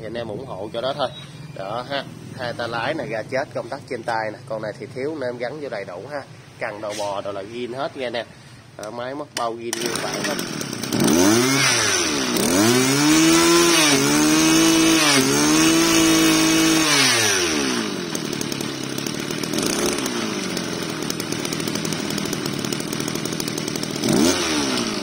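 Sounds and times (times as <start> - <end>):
brush cutter engine revving: 8.8 - 25.0.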